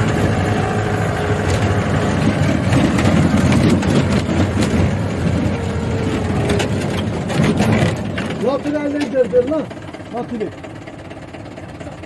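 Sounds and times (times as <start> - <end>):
engine low rumble: 0.0 - 12.0
body knocks and rattles: 1.4 - 9.2.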